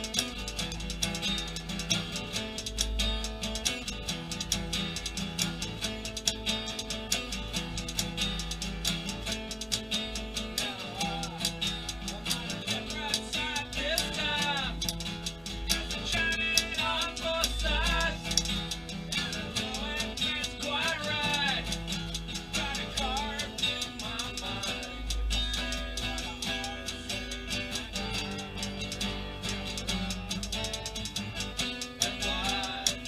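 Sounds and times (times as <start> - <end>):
acoustic guitar strummed: 0.0 - 33.0
typewriter keys clacking: 0.0 - 33.0
man singing: 10.2 - 33.0.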